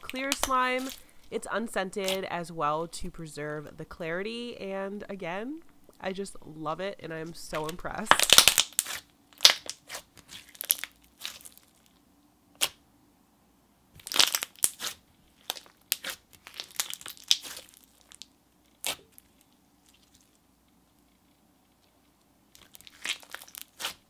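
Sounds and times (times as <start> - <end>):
slime squishing and popping: 7.6 - 11.7, 14.0 - 20.2, 22.6 - 24.0.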